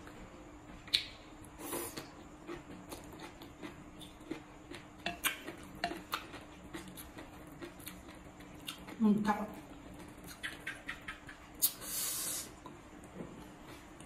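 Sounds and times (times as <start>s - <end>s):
wet chewing: 0.9s - 11.8s.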